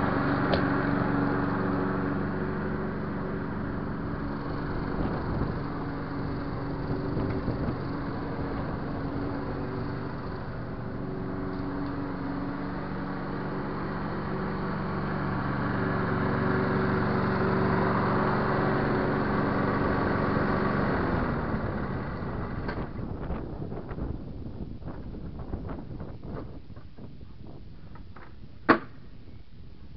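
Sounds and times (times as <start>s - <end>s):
engine winding down: 0.0s - 24.0s
lawn mower engine running: 0.0s - 29.9s.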